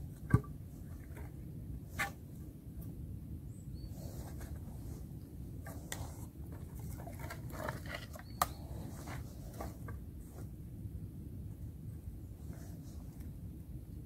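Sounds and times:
low steady rumble: 0:00.0 - 0:14.0
rustling: 0:04.0 - 0:10.5.

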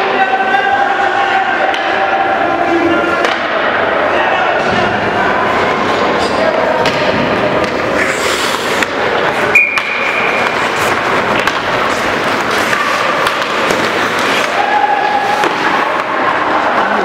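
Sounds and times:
sticks and puck clacking: 0:00.0 - 0:17.0
skate blades scraping ice: 0:07.6 - 0:17.0.

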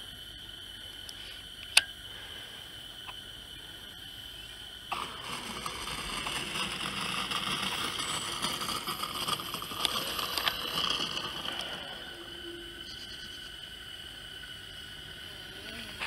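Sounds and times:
model aircraft propeller buzz: 0:04.3 - 0:16.0.

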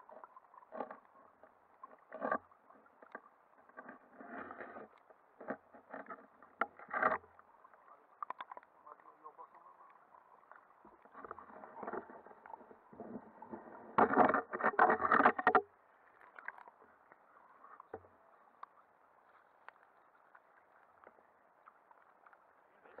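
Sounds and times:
water sloshing and knocks: 0:10.9 - 0:15.7.

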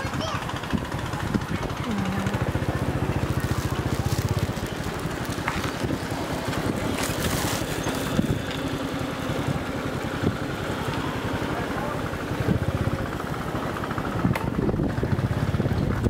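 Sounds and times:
motorbike engine running: 0:00.0 - 0:16.0
road noise: 0:00.0 - 0:16.0
wind noise on microphone: 0:03.4 - 0:08.5, 0:12.4 - 0:13.2, 0:14.0 - 0:16.0.

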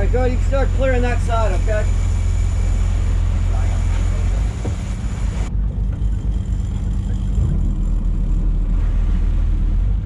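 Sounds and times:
boat engines rumbling: 0:00.0 - 0:10.0.

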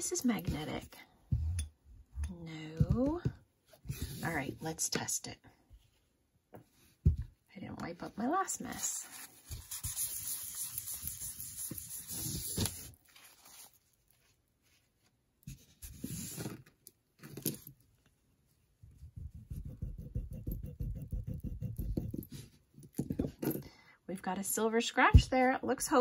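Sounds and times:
tissue rubbing on stone: 0:08.6 - 0:15.1.

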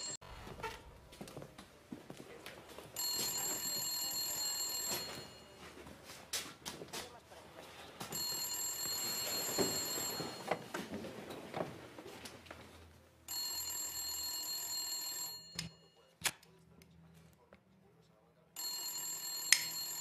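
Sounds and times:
telephone ringing: 0:03.0 - 0:05.7, 0:08.1 - 0:10.8, 0:13.3 - 0:16.0, 0:18.6 - 0:20.0.

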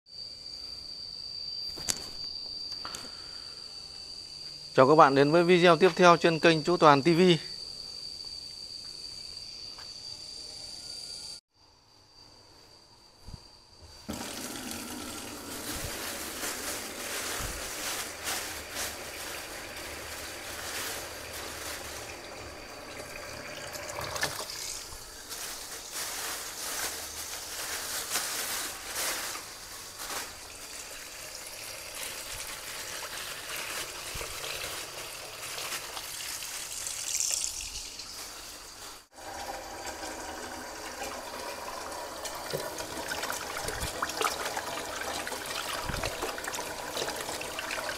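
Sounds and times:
tap water running into basin: 0:14.1 - 0:25.4, 0:30.1 - 0:47.9
water stream into steel pot: 0:14.1 - 0:27.4, 0:29.0 - 0:47.9
water splashing: 0:39.2 - 0:47.9.

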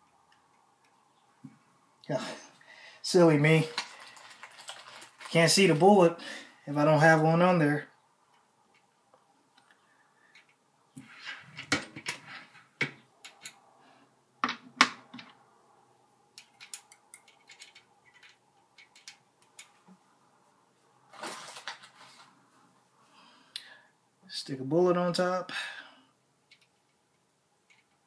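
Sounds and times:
metal cartridges clicking: 0:16.4 - 0:19.8.

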